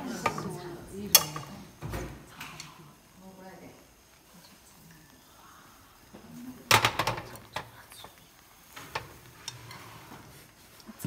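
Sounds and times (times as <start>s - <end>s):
chopsticks tapping a pan: 0.0s - 1.8s, 6.6s - 10.9s
frying pan clattering on stove: 0.0s - 2.2s, 6.6s - 7.7s.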